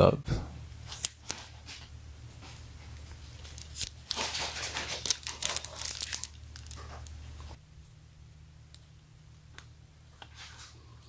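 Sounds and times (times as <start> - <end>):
plastic wrapping crinkling and tearing: 0.9 - 1.8, 2.8 - 7.6.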